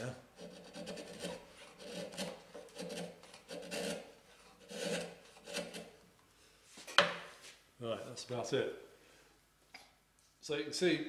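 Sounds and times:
chisel scraping wood: 0:00.4 - 0:06.0.

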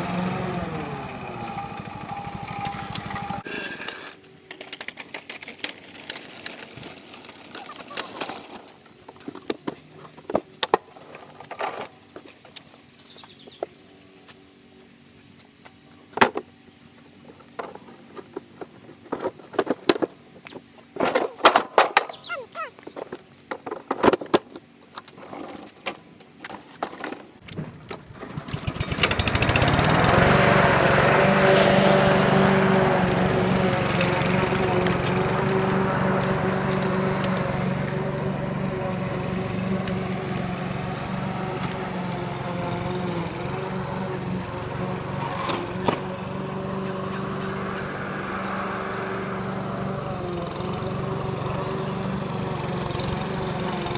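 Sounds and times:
push mower rattling over concrete: 0:00.0 - 0:13.5, 0:16.2 - 0:53.9
plastic grass catcher clunking: 0:25.2 - 0:47.6.

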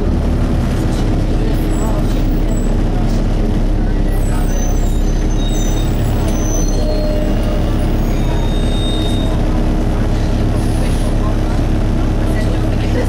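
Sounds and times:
engine low rumble: 0:00.0 - 0:13.0.

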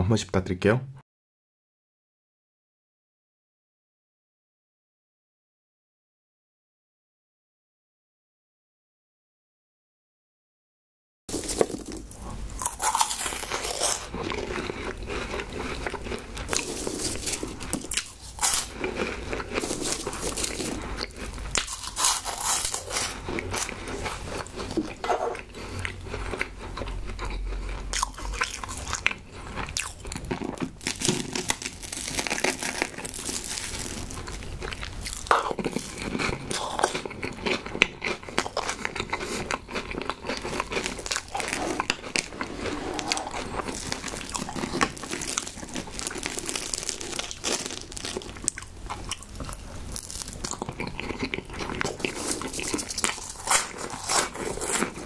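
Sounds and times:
crunchy chewing: 0:11.3 - 0:55.0.

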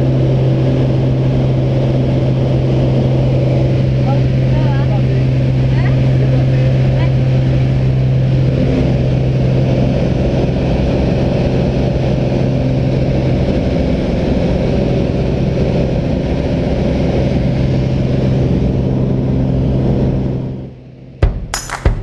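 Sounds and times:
plane engine droning in cabin: 0:00.0 - 0:20.6
music with sharp percussive hits: 0:21.2 - 0:22.0.

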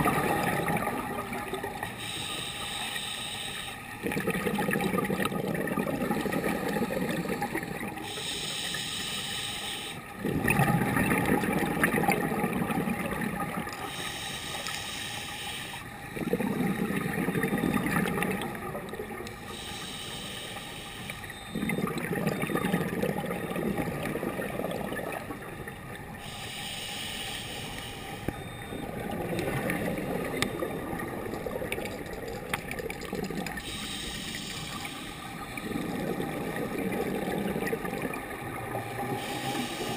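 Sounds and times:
bubbling exhaust underwater: 0:00.0 - 0:39.9
regulator hissing inhale: 0:02.0 - 0:03.9, 0:08.0 - 0:10.0, 0:13.8 - 0:15.9, 0:19.5 - 0:21.3, 0:26.2 - 0:28.3, 0:33.6 - 0:35.8, 0:39.2 - 0:39.9.

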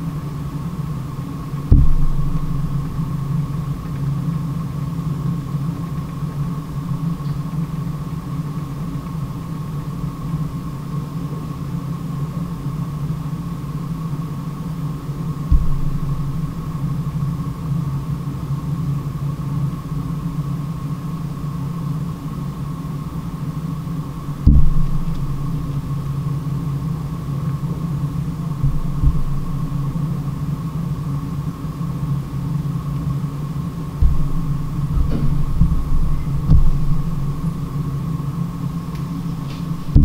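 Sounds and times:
steady low hum: 0:00.0 - 0:40.0
deep thumps: 0:01.7 - 0:03.3, 0:15.5 - 0:17.1, 0:24.4 - 0:25.8, 0:28.6 - 0:30.0, 0:34.0 - 0:37.8, 0:39.7 - 0:40.0.

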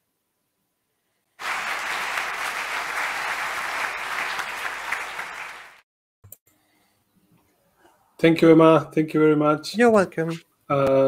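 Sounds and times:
audience applause: 0:01.4 - 0:05.8.

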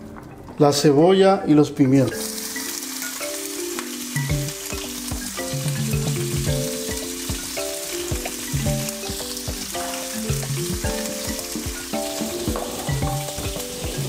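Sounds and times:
vegetables sizzling in oil: 0:02.1 - 0:14.0
music with deep drum beat: 0:04.2 - 0:14.0.

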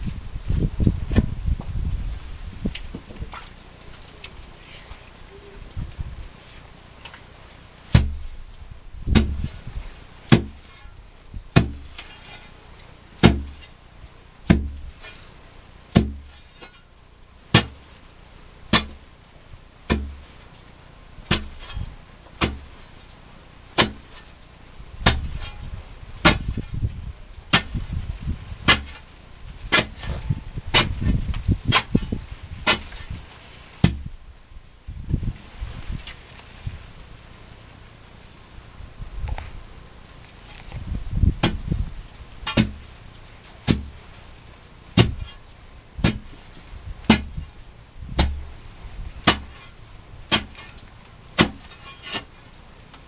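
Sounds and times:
loosened earth scraping: 0:00.0 - 0:52.5
thuds: 0:07.9 - 0:08.3, 0:09.1 - 0:09.6, 0:10.3 - 0:10.9, 0:11.6 - 0:12.1, 0:14.5 - 0:15.2, 0:41.4 - 0:41.7, 0:42.5 - 0:42.8, 0:43.7 - 0:44.0, 0:46.0 - 0:46.4
digging tool striking gravel: 0:07.9 - 0:13.8, 0:14.4 - 0:16.9, 0:17.5 - 0:18.0, 0:18.7 - 0:19.2, 0:19.9 - 0:20.5, 0:21.2 - 0:34.1, 0:40.3 - 0:48.6, 0:49.2 - 0:52.4.

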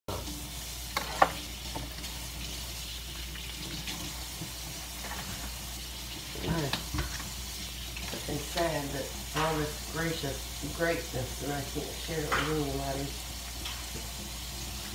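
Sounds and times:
voice: 0:06.4 - 0:06.9, 0:08.1 - 0:13.2.

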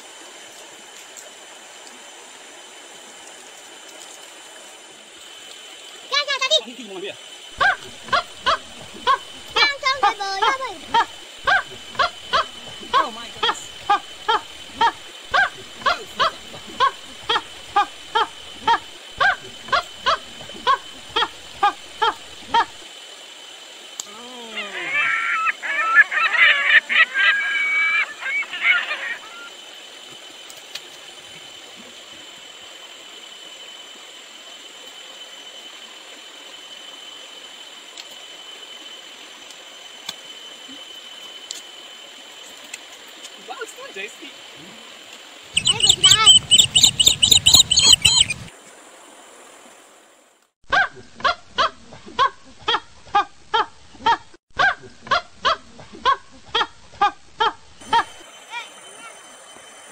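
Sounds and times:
outdoor background hiss: 0:00.0 - 0:59.9
animal short calls: 0:45.6 - 0:48.5
faint high-pitched whine: 0:57.8 - 0:59.9.

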